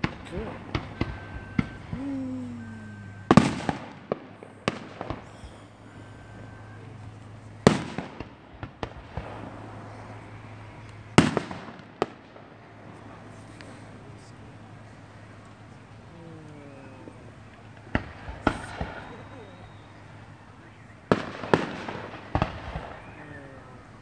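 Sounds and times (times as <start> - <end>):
fireworks shells bursting: 0.0 - 13.2
fireworks crackling: 0.0 - 24.0.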